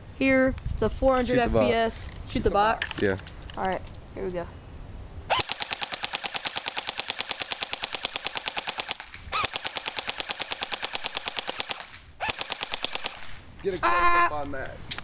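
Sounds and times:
airsoft gun firing bursts: 0:05.3 - 0:13.4.

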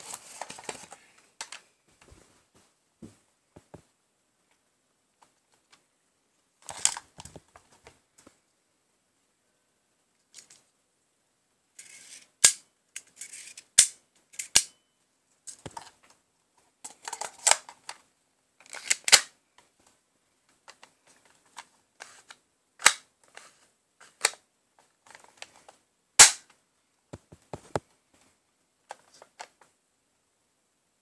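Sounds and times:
handling rustle: 0:00.0 - 0:02.7.

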